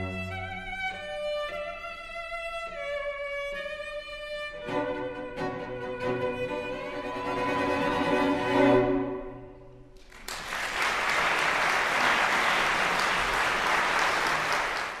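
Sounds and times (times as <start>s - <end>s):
audience applause: 10.0s - 15.0s.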